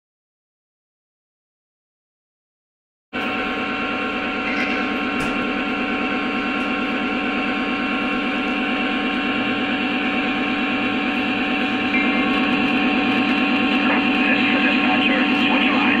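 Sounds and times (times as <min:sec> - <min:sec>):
diesel engine rumble: 0:03.2 - 0:16.0.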